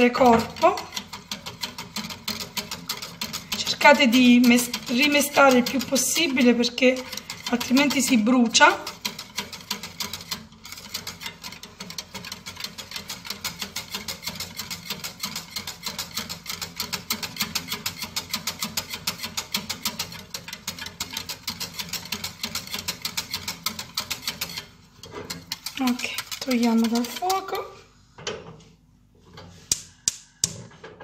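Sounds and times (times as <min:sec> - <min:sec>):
metal whisk clattering in saucepan: 0:00.0 - 0:27.8.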